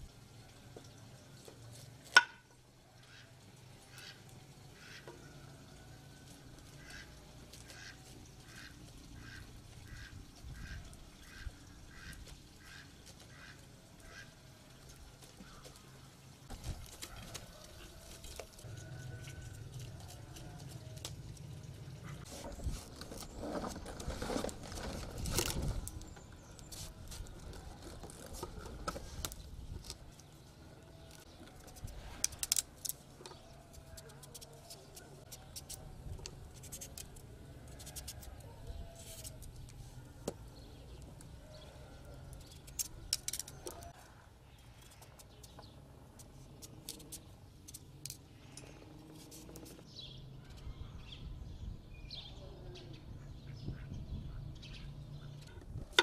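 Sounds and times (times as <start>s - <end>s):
birds chirping: 38.2s - 55.8s.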